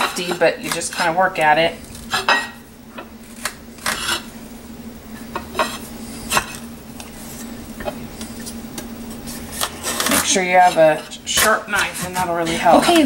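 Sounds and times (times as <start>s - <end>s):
knife cutting through squash rind: 9.3s - 13.0s.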